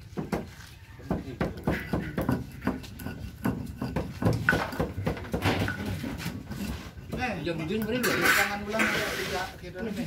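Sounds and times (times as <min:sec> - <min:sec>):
stone pestle grinding in mortar: 0:01.4 - 0:09.3.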